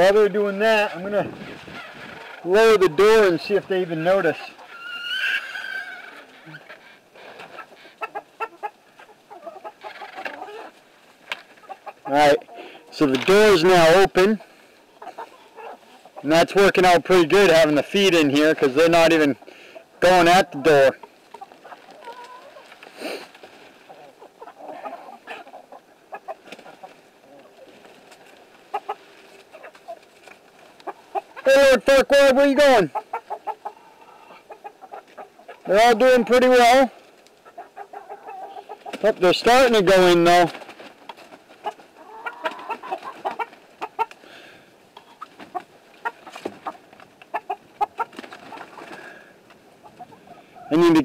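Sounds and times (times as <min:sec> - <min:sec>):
chickens clucking: 0:00.0 - 0:51.0
pecking and scratching in straw: 0:20.0 - 0:32.0.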